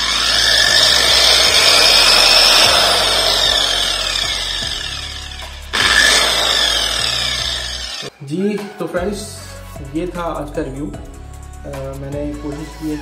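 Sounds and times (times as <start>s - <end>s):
angle grinder motor whine: 0.0s - 8.1s.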